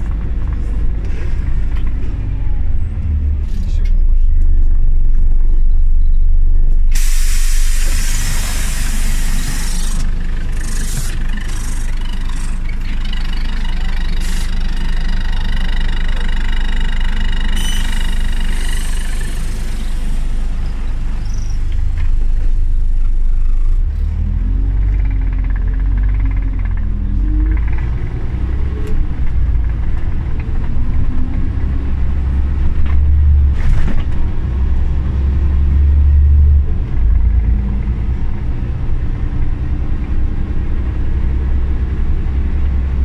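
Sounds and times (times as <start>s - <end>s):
bus engine rumbling: 0.0s - 43.0s
compressed air hissing: 6.9s - 11.9s, 17.6s - 21.4s.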